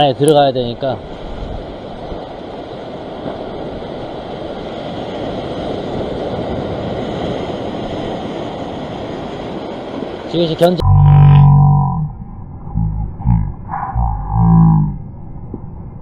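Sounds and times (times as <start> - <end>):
waves breaking on rocks: 0.0 - 10.8.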